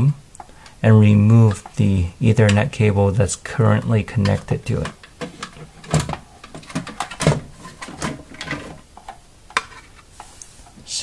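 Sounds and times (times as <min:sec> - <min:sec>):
modem and cables clicking: 0:03.8 - 0:09.9.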